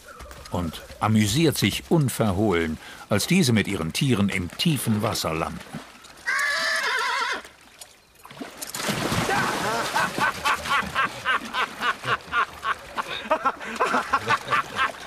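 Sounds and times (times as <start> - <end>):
man laughing heartily: 9.3 - 15.0.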